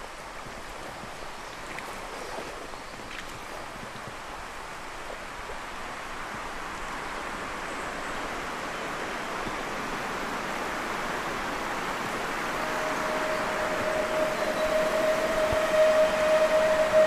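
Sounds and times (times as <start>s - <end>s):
lake water around canoe: 0.0s - 17.0s
steady hum: 12.1s - 17.0s
wind rushing: 12.1s - 17.0s.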